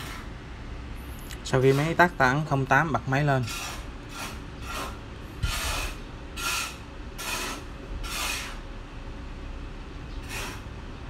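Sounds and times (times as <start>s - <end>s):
copier mechanism rasping swish: 3.4s - 8.6s.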